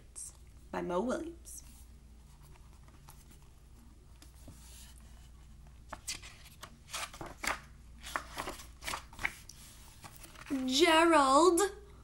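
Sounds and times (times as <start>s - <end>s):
book pages rustling: 1.6s - 10.8s.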